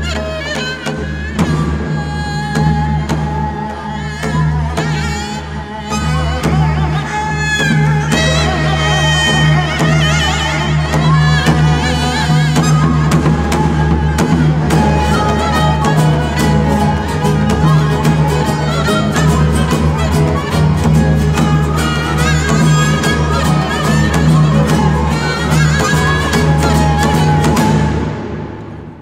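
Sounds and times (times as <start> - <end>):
bowed strings: 0.0 - 29.0
flute melody: 0.0 - 29.0
sharp plucked notes: 5.6 - 29.0.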